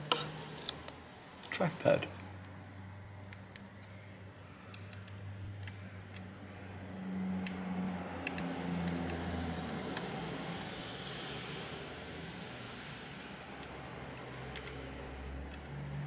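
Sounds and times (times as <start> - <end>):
fingers clicking plastic connector: 3.3 - 10.1, 13.6 - 14.8.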